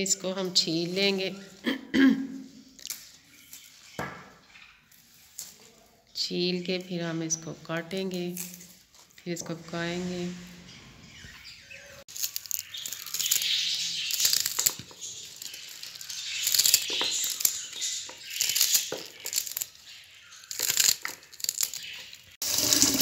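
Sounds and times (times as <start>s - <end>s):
crisp stems snapping: 2.8s - 3.7s, 8.4s - 9.2s, 12.1s - 22.4s
leaves rustling: 8.2s - 23.0s.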